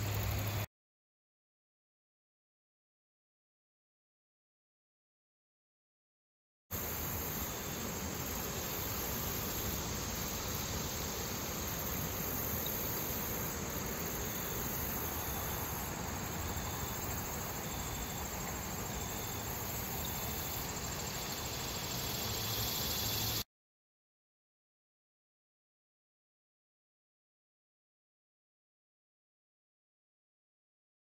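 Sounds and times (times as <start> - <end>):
insects buzzing: 0.0 - 0.7, 6.8 - 23.4.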